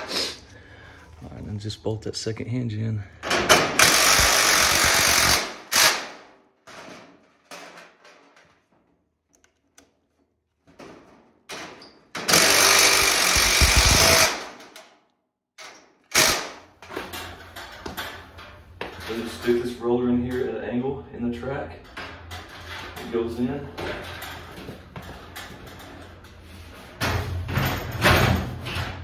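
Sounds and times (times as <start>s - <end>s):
impact driver hammering screws: 3.5s - 6.2s, 12.2s - 14.7s, 16.1s - 16.6s.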